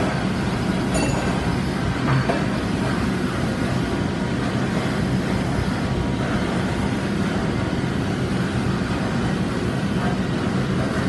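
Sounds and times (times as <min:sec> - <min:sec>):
machinery drone: 0:00.0 - 0:11.0.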